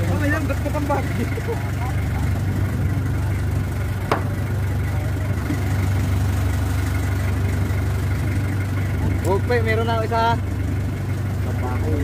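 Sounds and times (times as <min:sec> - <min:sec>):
boat engine idling: 0:00.0 - 0:12.0
sharp knock: 0:04.1 - 0:04.4.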